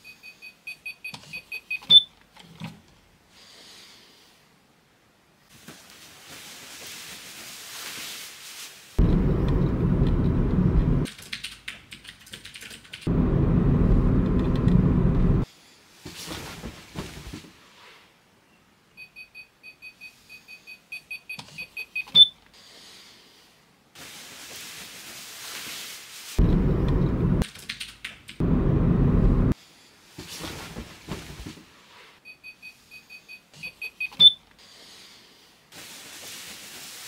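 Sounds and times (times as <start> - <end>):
electronic alarm beeping: 0.0 - 2.1, 19.0 - 22.4, 32.3 - 34.4
road rumble inside car: 9.0 - 11.1, 13.1 - 15.5, 26.4 - 27.4, 28.4 - 29.6.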